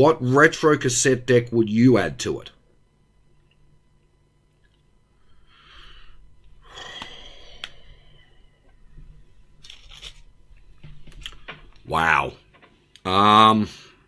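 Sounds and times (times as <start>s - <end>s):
man breathing out heavily: 5.3s - 8.7s.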